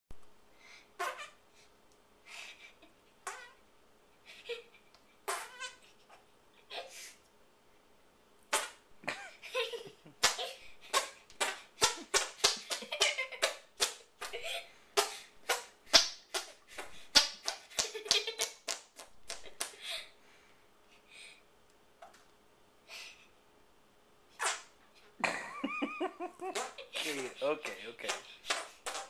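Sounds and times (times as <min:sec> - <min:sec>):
armpit fart pops: 0:08.5 - 0:08.8.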